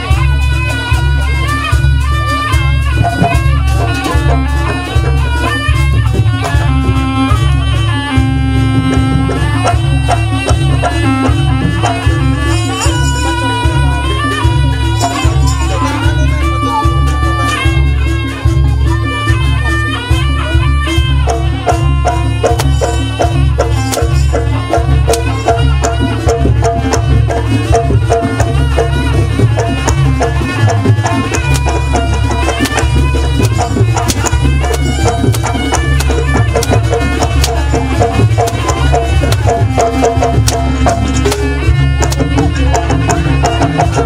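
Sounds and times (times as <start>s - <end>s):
drumming: 0.0s - 44.0s
steady percussion: 0.0s - 44.0s
high gliding melody: 27.4s - 44.0s.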